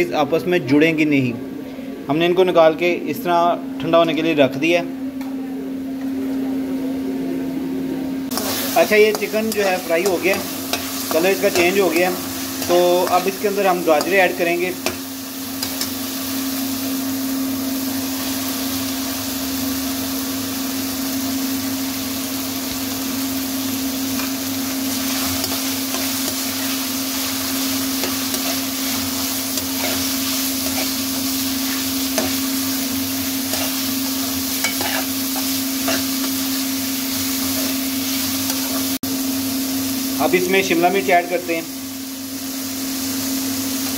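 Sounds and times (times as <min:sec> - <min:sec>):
food sizzling in a wok: 0:08.3 - 0:43.9
metal spoon scraping a pan: 0:27.9 - 0:32.5, 0:33.4 - 0:36.4.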